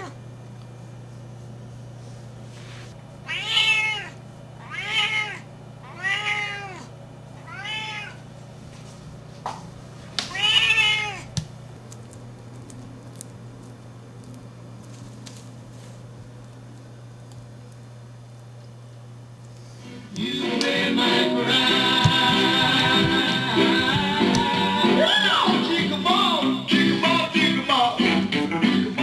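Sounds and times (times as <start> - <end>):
cat meowing loudly: 3.2 - 8.2, 10.3 - 11.3.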